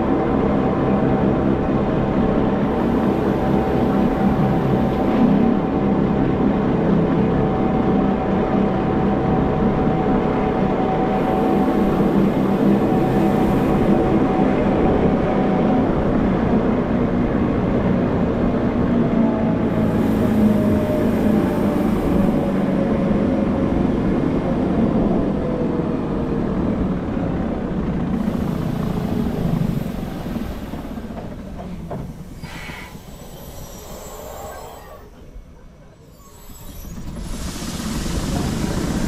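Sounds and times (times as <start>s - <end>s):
train running rumble: 0.0s - 39.0s
faint motor whine: 28.1s - 39.0s
brief high squeal: 32.0s - 38.1s.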